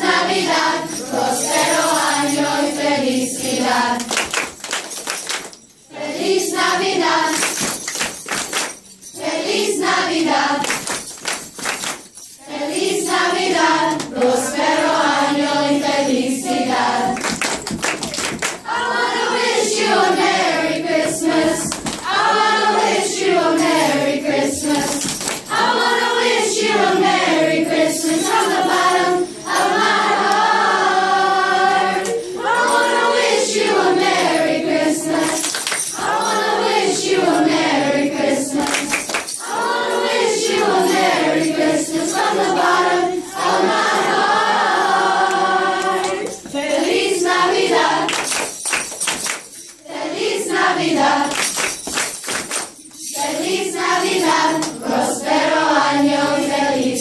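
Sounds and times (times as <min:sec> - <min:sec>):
children singing a carol: 0:00.0 - 0:04.1, 0:05.9 - 0:07.4, 0:09.2 - 0:10.7, 0:12.4 - 0:17.3, 0:18.6 - 0:48.1, 0:49.8 - 0:51.3, 0:53.1 - 0:57.0.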